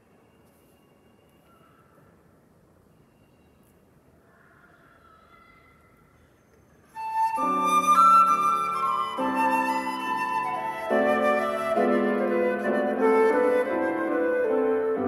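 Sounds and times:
flute melody: 6.9 - 15.0
piano chords: 7.0 - 15.0.

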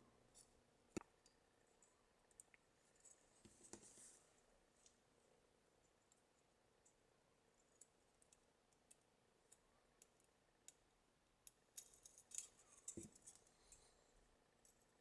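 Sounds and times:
wire leads clicking and scraping: 7.6 - 13.9.

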